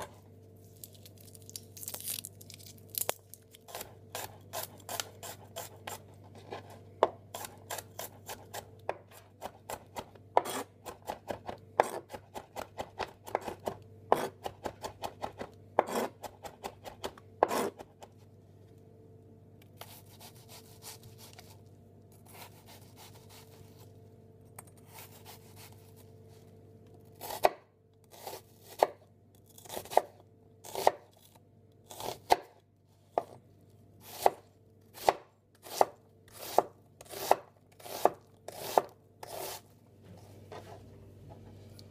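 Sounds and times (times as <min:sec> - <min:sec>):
knife chopping on cutting board: 0:07.0 - 0:17.9, 0:34.1 - 0:34.4, 0:35.0 - 0:39.6.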